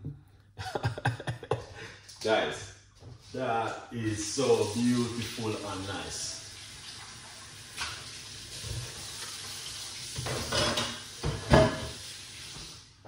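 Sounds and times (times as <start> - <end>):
dishes and utensils clattering: 10.2 - 12.0.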